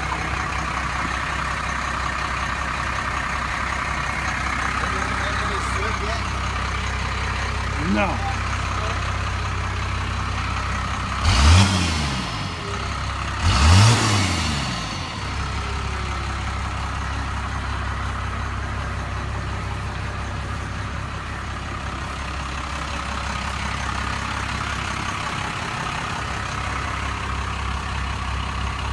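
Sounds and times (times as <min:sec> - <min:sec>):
diesel engine idling and revving: 0:00.0 - 0:28.9.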